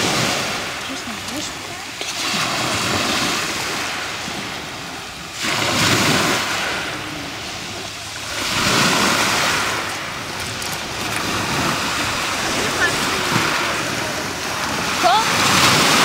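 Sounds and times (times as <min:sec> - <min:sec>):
surf washing up pebble beach: 0:00.0 - 0:16.0.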